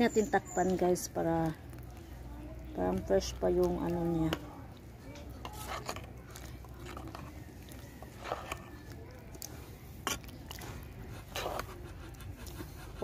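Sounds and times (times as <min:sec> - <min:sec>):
metal ladle stirring stew: 0:00.0 - 0:13.0
ladle scraping and knocking pot: 0:05.4 - 0:08.8.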